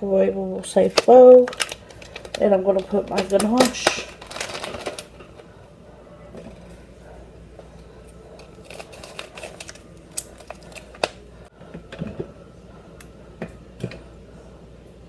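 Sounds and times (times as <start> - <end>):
packet crinkling: 0.8 - 5.4, 8.4 - 11.2.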